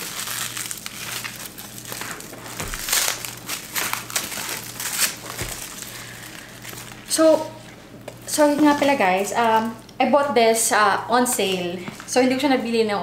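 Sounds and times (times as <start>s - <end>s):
tissue paper crinkling: 0.0s - 7.7s.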